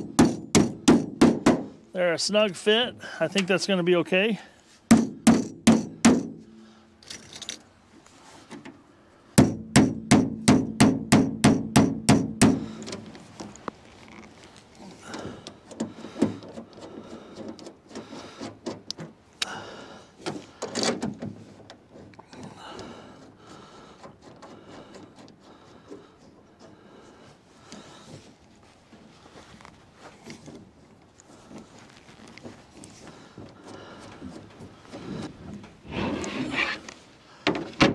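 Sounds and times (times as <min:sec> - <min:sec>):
hammer tapping metal punches: 0:00.0 - 0:01.7, 0:04.9 - 0:06.4, 0:09.4 - 0:12.7.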